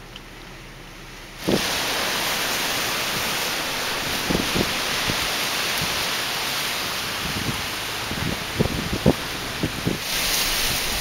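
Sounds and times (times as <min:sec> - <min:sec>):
gusty wind rushing: 0:01.4 - 0:11.0
wind buffeting microphone: 0:02.8 - 0:06.2, 0:06.9 - 0:11.0.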